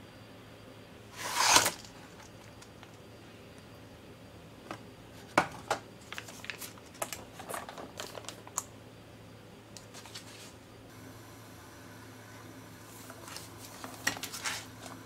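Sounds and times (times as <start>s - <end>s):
foil pouch crinkling: 6.0s - 8.7s.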